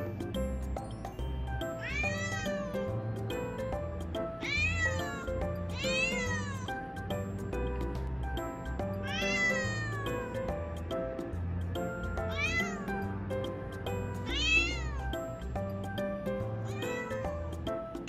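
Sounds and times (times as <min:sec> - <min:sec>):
cat meowing: 0:01.6 - 0:02.9, 0:04.4 - 0:06.9, 0:09.0 - 0:10.4, 0:12.1 - 0:13.0, 0:14.1 - 0:15.3, 0:16.6 - 0:17.5.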